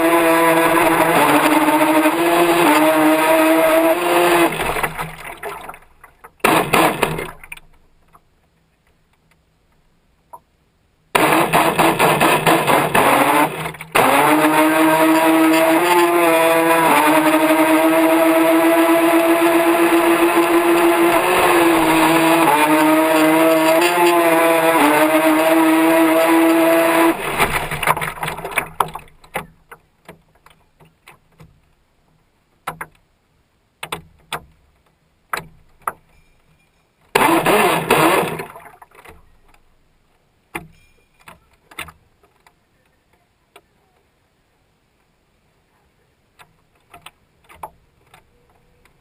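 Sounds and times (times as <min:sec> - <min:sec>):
rc boat motor whining: 0:00.0 - 0:05.4, 0:06.4 - 0:07.3, 0:11.2 - 0:28.7, 0:37.2 - 0:38.6
water rushing along hull: 0:00.0 - 0:07.6, 0:11.2 - 0:29.2, 0:37.2 - 0:39.1.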